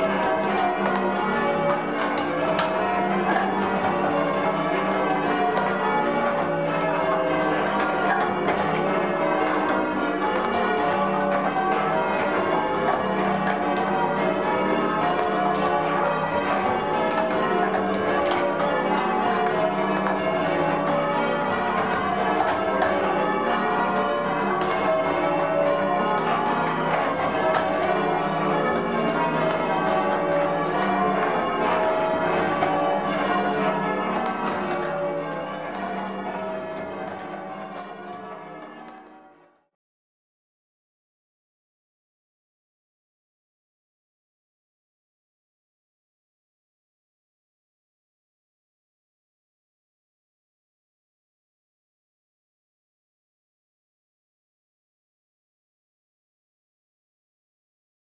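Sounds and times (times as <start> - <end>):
church bells ringing: 0.0 - 39.5.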